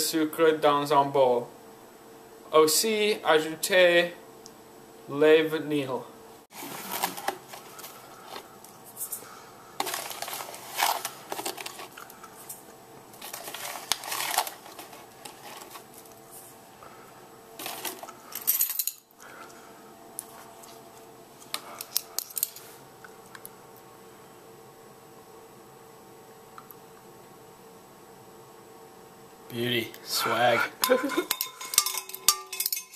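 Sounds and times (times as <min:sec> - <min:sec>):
paper rustling: 0:06.5 - 0:12.6, 0:13.2 - 0:16.6, 0:17.6 - 0:18.1
metal spoon clinking on bowl: 0:30.8 - 0:32.9
spoon scraping: 0:30.8 - 0:32.9.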